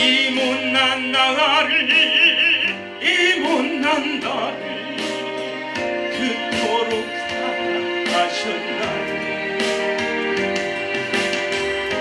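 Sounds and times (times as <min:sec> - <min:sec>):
man singing with vibrato: 0:00.0 - 0:09.2
backing track of sustained chords: 0:00.0 - 0:12.0.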